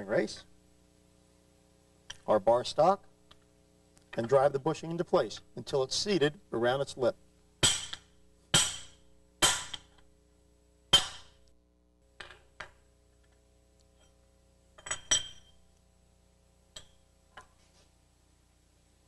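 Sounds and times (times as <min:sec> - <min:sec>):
hammer striking steel bar: 0:07.6 - 0:09.9, 0:10.9 - 0:11.4.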